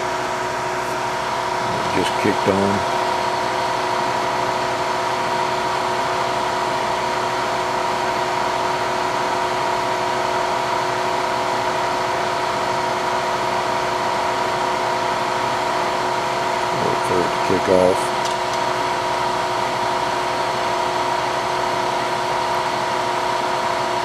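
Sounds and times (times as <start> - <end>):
cooling fan whirring: 0.0 - 24.0.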